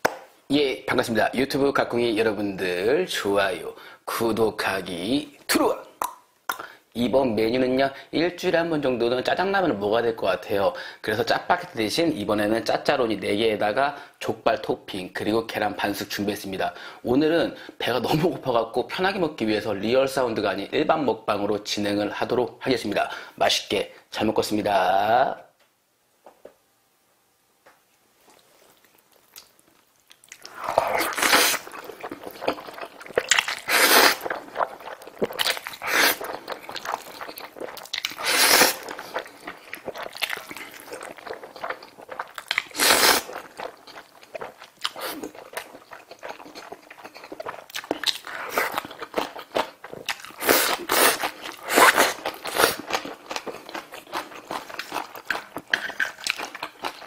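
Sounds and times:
wet chewing: 28.2 - 57.0
noodle slurping: 30.4 - 48.8, 50.2 - 53.0.

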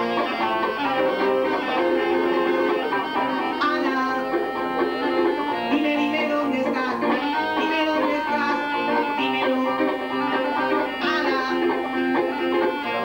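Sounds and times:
band accompaniment: 0.0 - 13.0
clarinet melody: 0.0 - 13.0.

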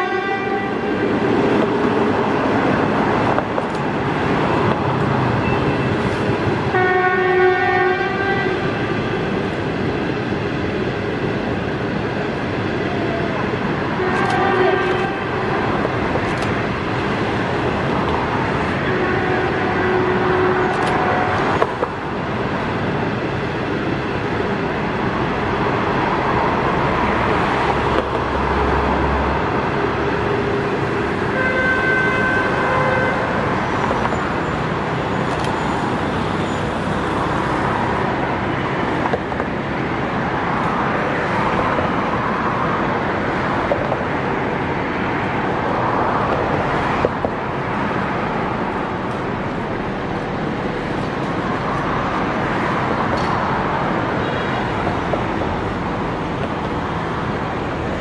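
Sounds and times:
train horn: 0.0 - 1.0, 6.7 - 8.9, 14.0 - 15.8, 18.8 - 21.5, 31.2 - 33.5
traffic noise: 0.0 - 58.0
train coaches rumbling on track: 0.0 - 58.0.

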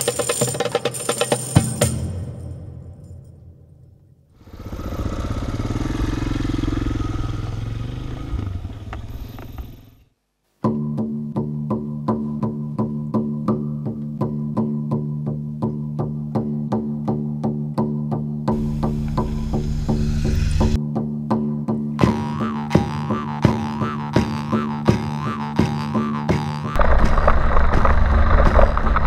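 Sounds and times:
motorcycle engine running: 4.5 - 10.0, 18.5 - 20.8
plucked string music with beat: 10.6 - 19.7, 20.7 - 26.8.

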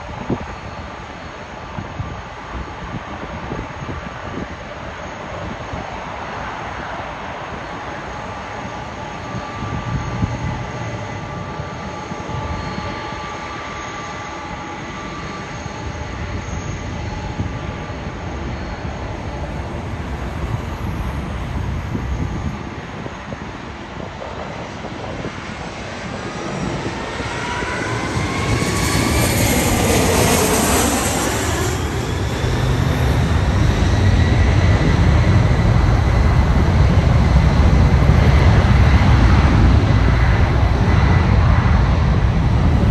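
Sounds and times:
jet engines rumbling and whining: 0.0 - 42.9
jet passing close: 0.0 - 42.9.

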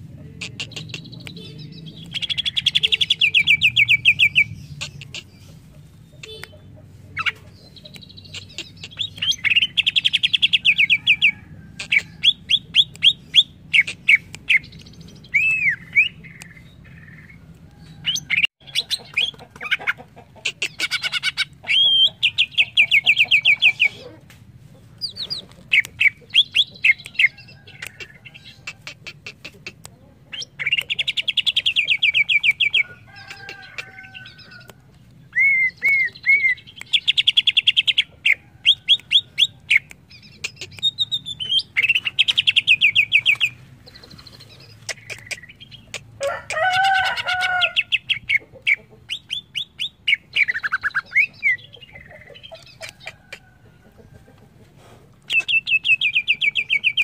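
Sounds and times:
bird singing trilled phrases: 20.6 - 24.1, 35.3 - 46.0, 47.6 - 53.0, 55.3 - 57.0.

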